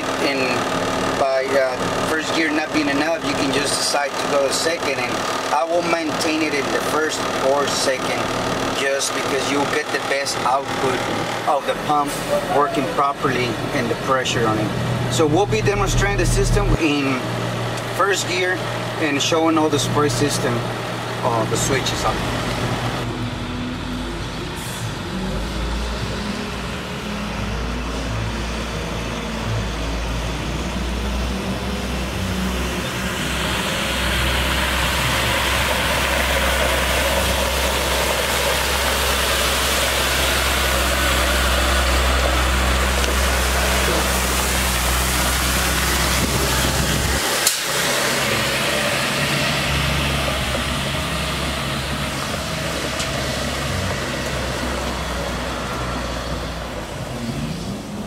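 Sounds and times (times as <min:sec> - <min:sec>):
diesel truck engine running: 0:00.0 - 0:58.0
water spraying hiss: 0:33.4 - 0:50.2.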